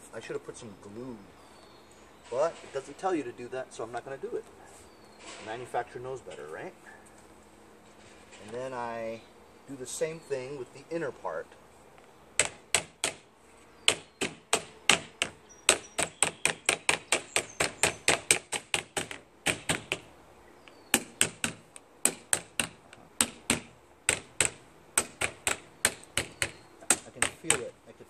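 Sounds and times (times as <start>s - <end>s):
hammer tapping on plastic: 21.0s - 27.7s.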